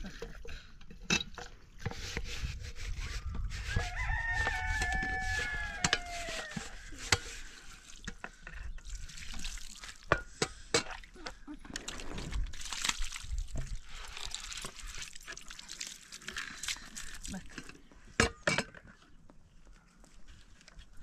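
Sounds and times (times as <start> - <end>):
water pouring and splashing: 1.4 - 17.8
rooster crowing: 3.7 - 6.9.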